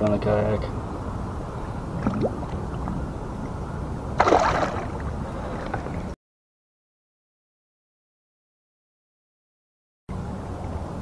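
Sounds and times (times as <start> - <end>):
wind and water rumble on microphone: 0.0 - 6.2
fish splashing into water: 4.2 - 5.9.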